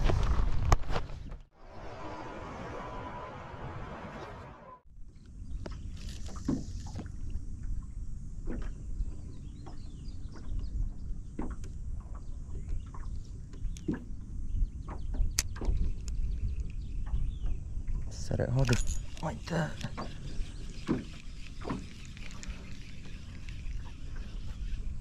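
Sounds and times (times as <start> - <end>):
waves lapping against boat hull: 5.5 - 25.0.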